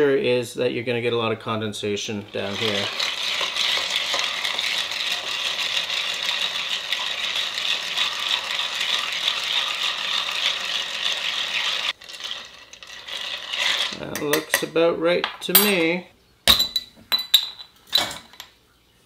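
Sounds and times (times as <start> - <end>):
ice clinking in glass jar: 2.4 - 14.7.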